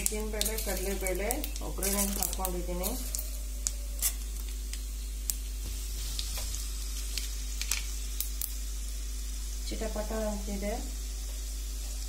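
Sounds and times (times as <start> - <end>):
seeds sizzling and crackling in oil: 0.0 - 12.0.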